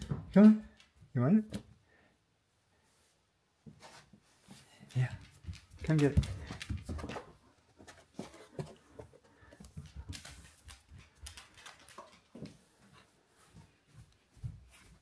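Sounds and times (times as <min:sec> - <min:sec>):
person's footsteps: 0:03.6 - 0:15.0
dog claws tapping on wooden floor: 0:04.9 - 0:13.0.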